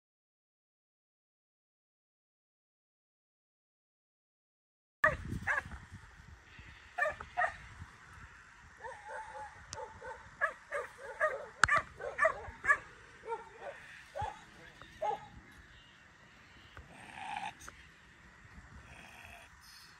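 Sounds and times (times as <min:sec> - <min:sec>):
dog barking: 0:05.0 - 0:05.7, 0:07.0 - 0:07.6, 0:08.8 - 0:15.3.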